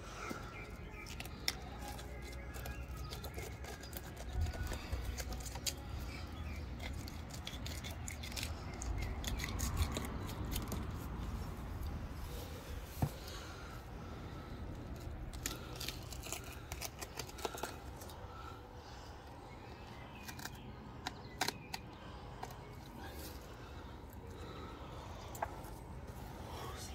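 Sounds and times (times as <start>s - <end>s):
knife crunching through fish scales: 6.7s - 10.9s, 15.2s - 18.1s.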